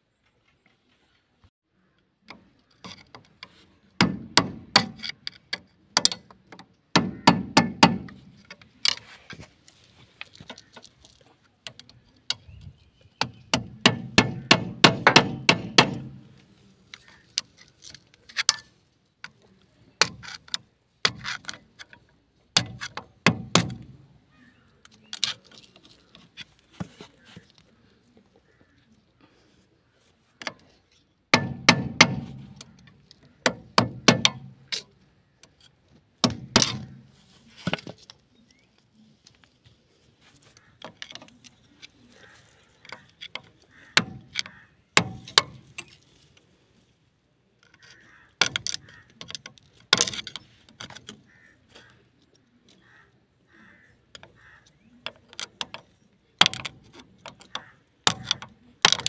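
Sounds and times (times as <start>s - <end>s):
steel bar knocking on metal: 7.0s - 8.2s, 13.2s - 16.4s, 22.6s - 24.0s, 31.3s - 32.7s, 33.5s - 34.8s, 36.2s - 37.0s, 43.8s - 45.7s.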